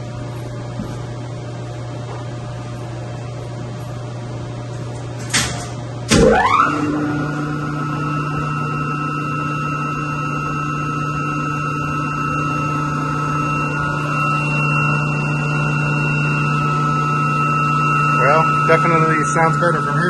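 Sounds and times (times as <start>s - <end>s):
electric motor pump humming: 0.0s - 20.0s
high motor whine: 5.6s - 20.0s.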